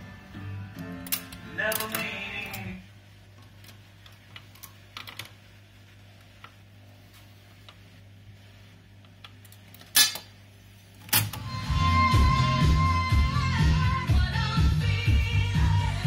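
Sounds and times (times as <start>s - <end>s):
music with singing from loudspeaker: 0.0s - 2.9s, 11.4s - 16.0s.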